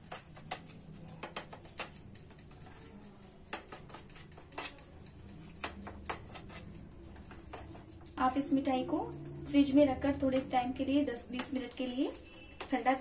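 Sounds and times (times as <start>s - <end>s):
spoon scraping mixture in tin: 0.0s - 13.0s.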